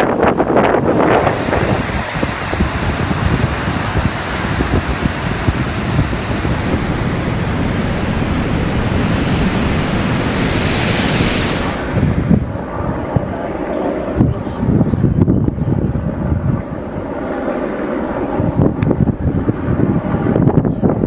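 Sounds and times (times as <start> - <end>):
wind rushing over microphone: 0.0 - 21.0
waves breaking against hull: 0.9 - 12.6.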